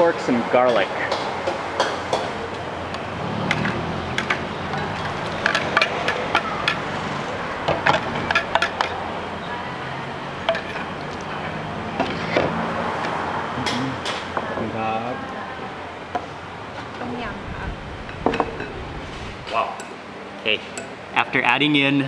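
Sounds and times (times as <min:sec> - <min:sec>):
ladle and bowls clinking: 0:03.6 - 0:07.0, 0:07.7 - 0:09.0, 0:10.4 - 0:11.3.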